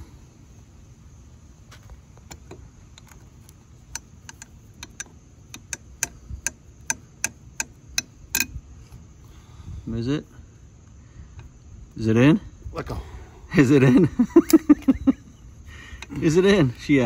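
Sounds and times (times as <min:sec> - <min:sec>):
small metal clicks: 0:02.2 - 0:08.6.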